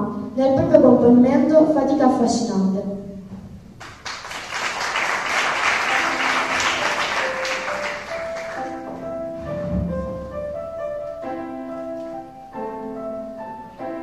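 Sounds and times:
slow piano melody: 3.0s - 14.0s
audience applauding: 3.8s - 9.0s.

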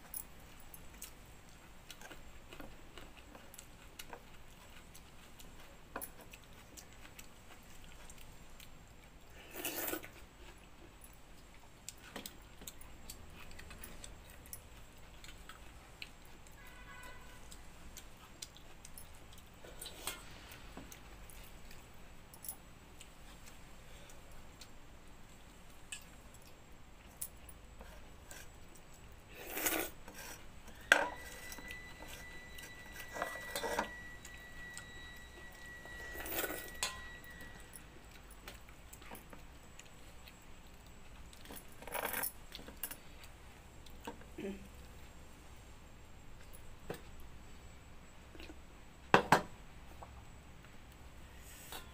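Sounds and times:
steel bowl ringing: 31.0s - 37.8s
bangles clinking against steel bowl: 35.6s - 37.7s.

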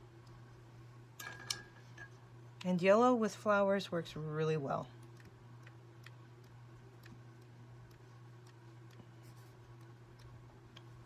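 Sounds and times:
low steady hum: 0.0s - 11.0s
faint irregular ticks: 4.8s - 11.0s.

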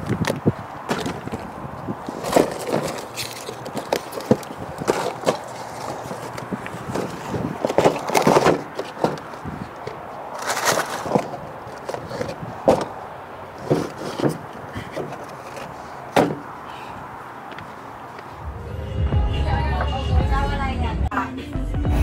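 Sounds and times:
boxes knocking and thumping: 0.9s - 1.5s, 2.1s - 13.0s, 13.6s - 16.5s
rustling: 2.1s - 12.9s.

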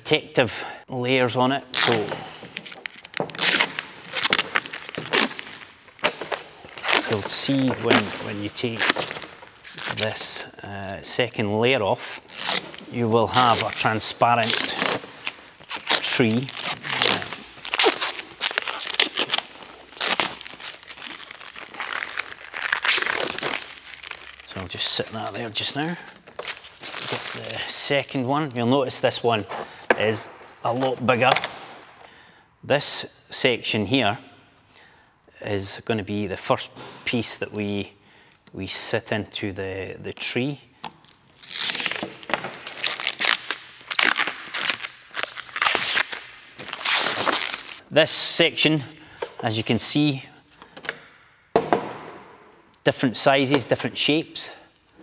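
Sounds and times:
plastic film peeling off: 1.7s - 10.4s, 12.0s - 27.7s, 41.0s - 47.9s.

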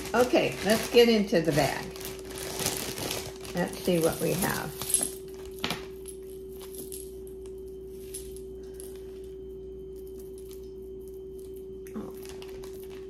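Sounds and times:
steady hum: 0.0s - 13.0s
jewelry clicking and clinking: 3.8s - 11.9s.

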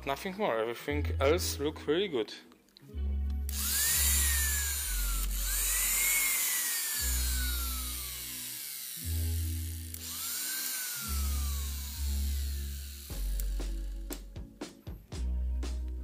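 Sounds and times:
electric motor whining: 3.5s - 14.2s.

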